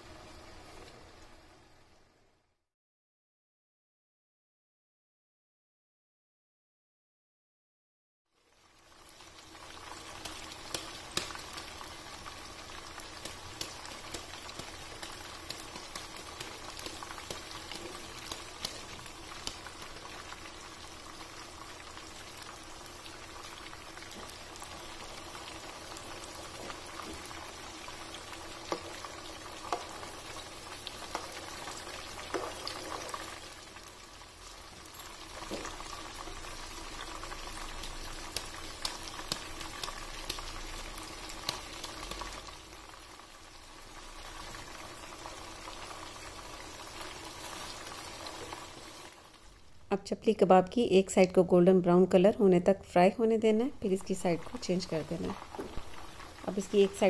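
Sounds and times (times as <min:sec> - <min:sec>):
meat sizzling in oil: 0:08.4 - 0:49.9, 0:53.6 - 0:57.0.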